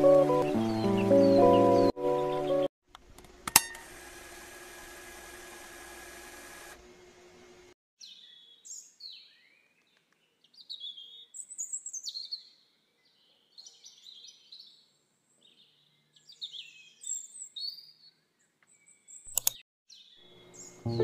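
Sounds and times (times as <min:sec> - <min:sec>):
birds chirping and singing: 0:00.4 - 0:02.7, 0:08.0 - 0:19.3, 0:19.9 - 0:21.0.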